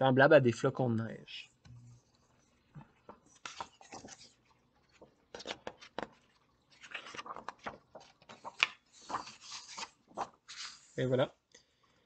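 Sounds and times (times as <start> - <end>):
book pages rustling: 1.9 - 11.0.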